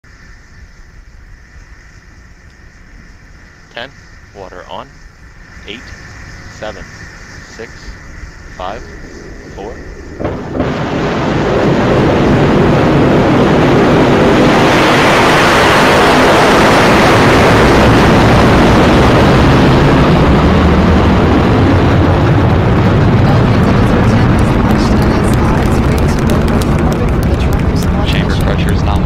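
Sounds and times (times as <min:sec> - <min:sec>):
rocket engines roaring: 0:00.4 - 0:29.0.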